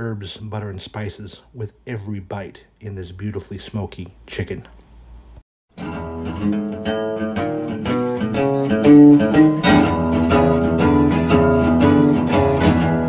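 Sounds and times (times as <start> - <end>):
plucked guitar music: 5.7 - 13.0.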